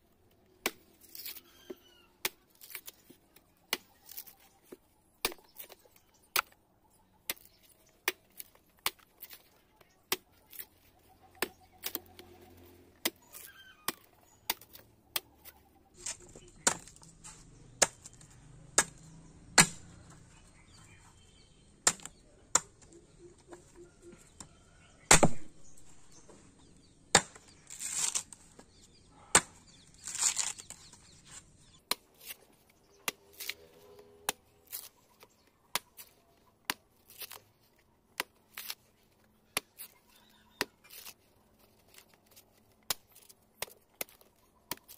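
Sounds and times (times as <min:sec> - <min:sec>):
machete chopping coconut husk: 0:11.3 - 0:20.7, 0:21.8 - 0:22.8, 0:25.0 - 0:25.6, 0:27.1 - 0:31.0, 0:31.6 - 0:37.5, 0:39.5 - 0:41.2.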